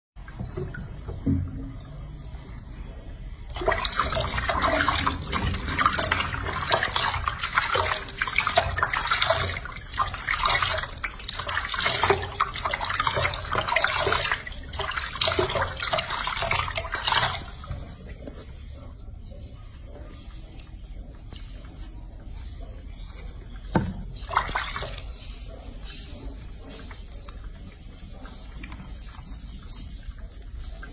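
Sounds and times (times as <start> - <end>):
water splashing in a sink: 3.4 - 18.5, 23.6 - 30.9.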